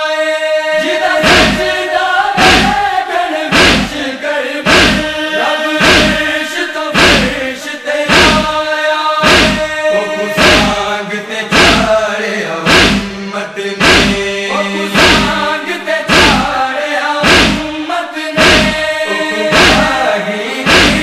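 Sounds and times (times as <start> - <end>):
men chanting a lament: 0.0 - 21.0
chest-beating thuds: 1.2 - 1.7, 2.4 - 2.8, 3.5 - 4.0, 4.6 - 5.2, 5.8 - 6.3, 7.0 - 7.4, 8.1 - 8.6, 9.2 - 10.8, 11.5 - 12.0, 12.7 - 13.2, 13.8 - 15.5, 16.1 - 16.5, 17.2 - 17.7, 18.4 - 20.0, 20.6 - 21.0.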